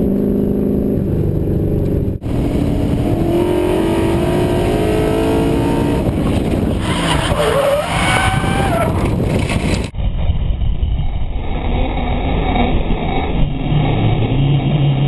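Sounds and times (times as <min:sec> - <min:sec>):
car engine revving: 0:00.0 - 0:09.9.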